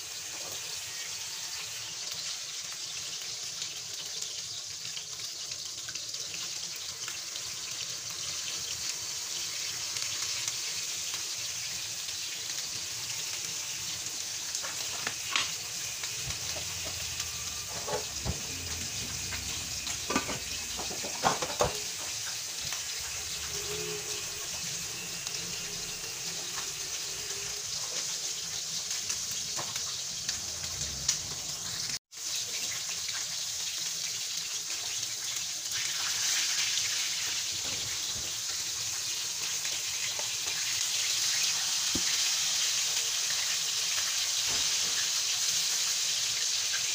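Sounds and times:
fish sizzling in hot oil: 0.0 - 46.9.

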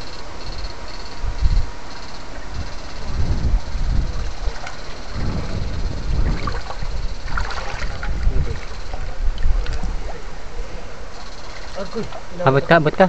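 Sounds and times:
wind rumble on microphone: 0.0 - 12.2
microphone handling noise: 2.4 - 11.1
water sloshing and rippling: 4.0 - 12.7.

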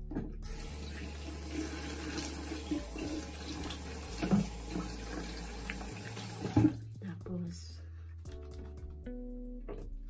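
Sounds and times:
tap water running into sink: 0.2 - 6.8.

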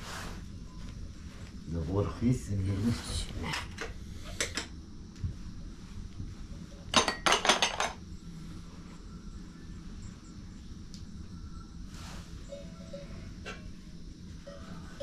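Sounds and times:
low room hum: 0.0 - 15.0
dishes and pots clinking: 6.9 - 8.0.

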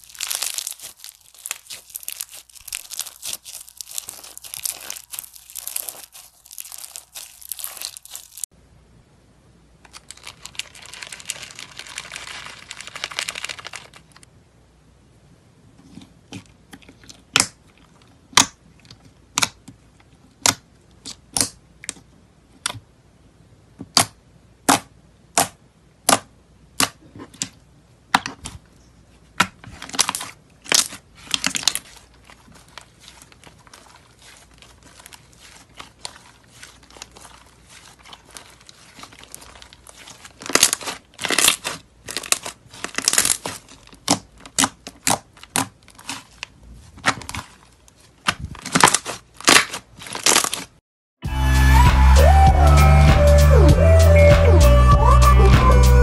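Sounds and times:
slime crackling: 0.0 - 8.5, 9.9 - 14.2, 29.8 - 50.8
slime popping: 0.0 - 8.5.

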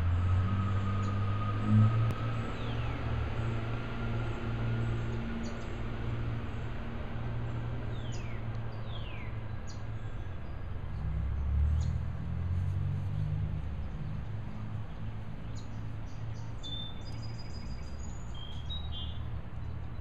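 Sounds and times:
small birds chirping: 13.2 - 20.0.

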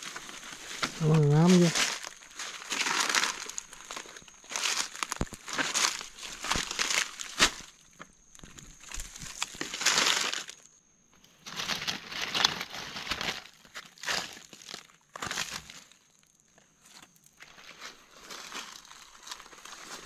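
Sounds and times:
dry leaves crackling and rustling: 0.0 - 10.7, 11.3 - 16.3, 17.4 - 20.0.

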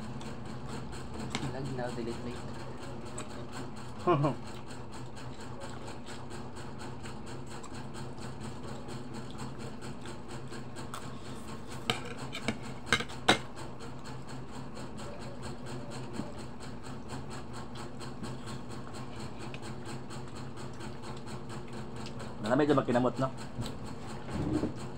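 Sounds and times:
steady low hum: 0.0 - 24.9
fork tapping on plates: 11.8 - 13.4.

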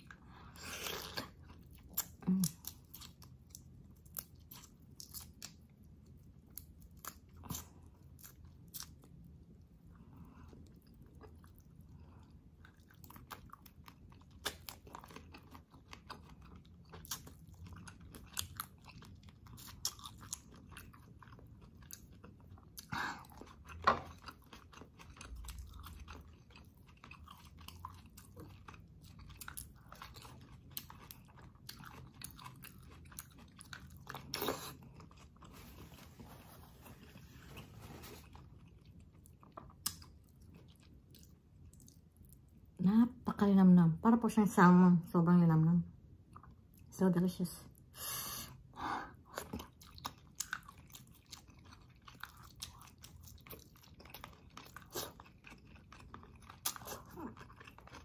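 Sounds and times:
close-up chewing: 0.0 - 42.7, 48.4 - 58.0.

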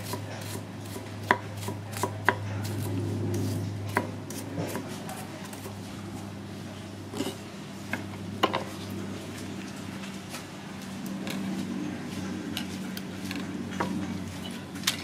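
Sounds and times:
knife scraping on chopping block: 0.0 - 5.8, 7.1 - 7.4
steady low hum: 0.0 - 15.0.

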